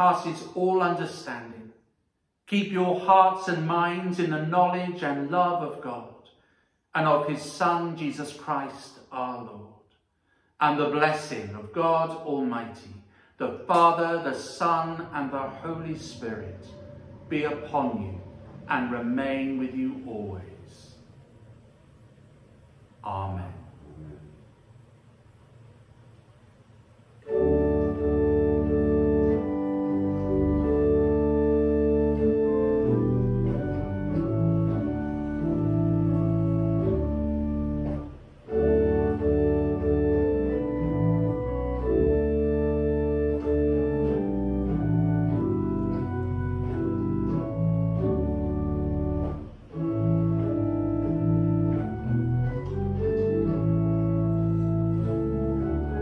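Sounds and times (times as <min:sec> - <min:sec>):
organ playing slow chords: 0:13.6 - 0:22.1, 0:27.1 - 0:56.0.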